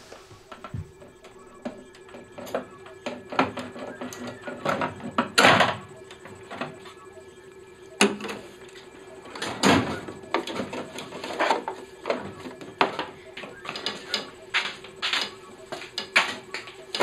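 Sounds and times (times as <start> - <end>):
faint steady hum: 0.0 - 17.0
photocopier parts clunking and rattling: 8.0 - 17.0.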